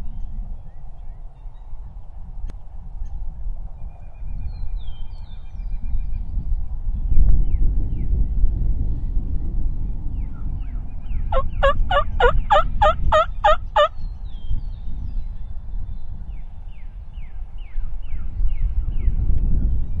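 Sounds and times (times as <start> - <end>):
wild turkey calling: 11.3 - 13.9.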